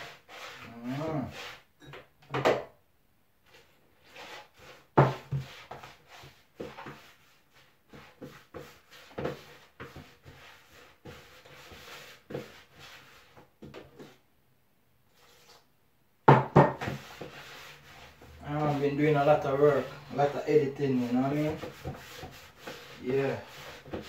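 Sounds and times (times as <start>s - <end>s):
hands rubbing dough: 3.5s - 14.2s, 16.8s - 24.0s
dough knocking in a bowl: 16.2s - 17.1s.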